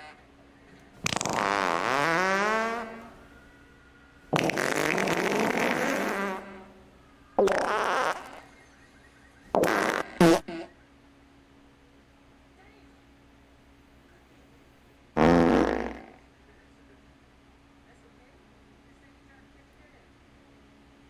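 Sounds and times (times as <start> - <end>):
farts: 1.0 - 3.2, 4.3 - 6.8, 7.4 - 8.5, 9.5 - 10.7, 15.2 - 16.3.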